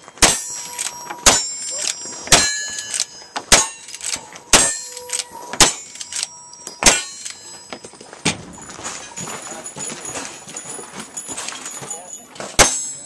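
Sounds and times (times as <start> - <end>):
rifle shots: 0.2 - 1.6, 2.3 - 7.3
steel target ringing ping: 0.2 - 7.8.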